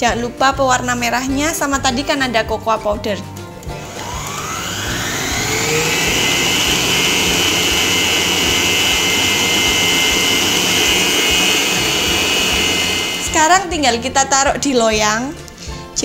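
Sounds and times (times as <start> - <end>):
stand mixer motor whining: 3.7 - 13.8.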